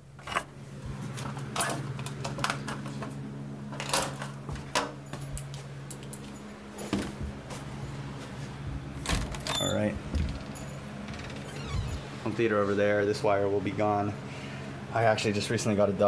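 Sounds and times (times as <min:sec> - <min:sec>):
steady low hum: 0:00.0 - 0:16.0
knocks bumps and rustling: 0:08.7 - 0:10.8.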